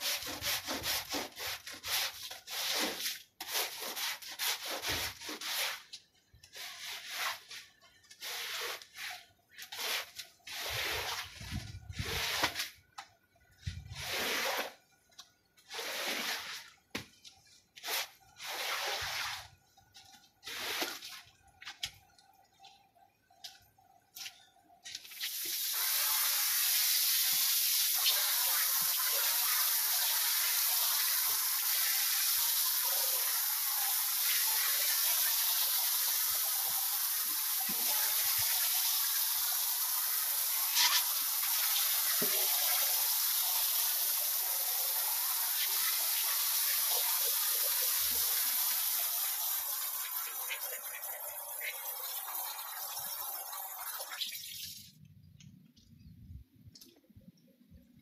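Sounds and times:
hose spraying water: 0.0 - 5.9, 6.5 - 12.8, 13.8 - 14.8, 15.6 - 16.8, 17.8 - 19.6, 20.4 - 21.3, 25.0 - 55.0
squeegee swishing water on rug: 0.0 - 12.8, 13.9 - 14.8, 15.6 - 21.8.

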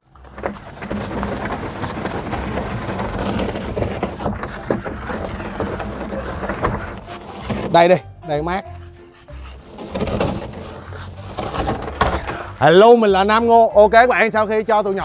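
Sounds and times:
plastic tubs scraping on gravel: 0.0 - 8.1, 9.5 - 13.4.

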